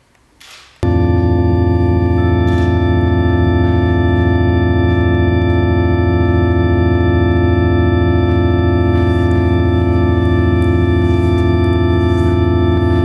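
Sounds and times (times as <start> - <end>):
electronic keyboard organ chord: 0.8 - 13.0.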